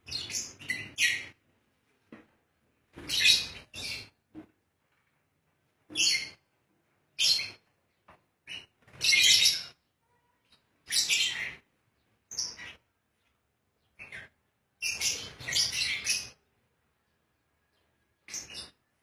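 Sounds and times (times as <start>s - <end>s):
lovebirds calling shrilly: 0.1s - 1.4s, 8.5s - 9.8s, 14.0s - 16.4s.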